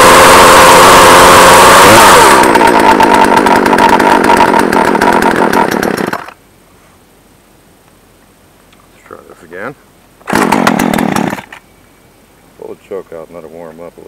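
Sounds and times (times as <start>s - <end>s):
chainsaw running: 0.0s - 6.4s, 10.3s - 11.5s.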